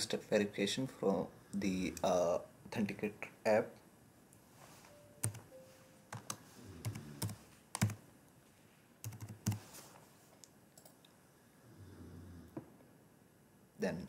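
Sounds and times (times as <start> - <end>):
keyboard typing: 5.0 - 8.0, 9.0 - 9.6.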